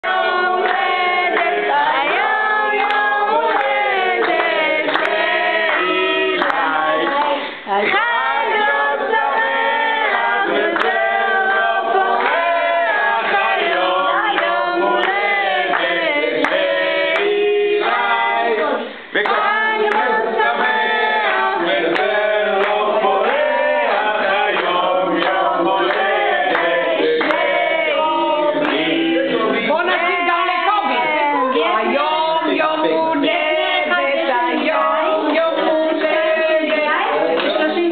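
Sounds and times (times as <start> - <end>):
group singing birthday song: 0.0 - 37.9
hands clapping: 0.1 - 8.2, 10.0 - 11.2, 12.1 - 18.3, 19.2 - 29.2, 34.6 - 37.9.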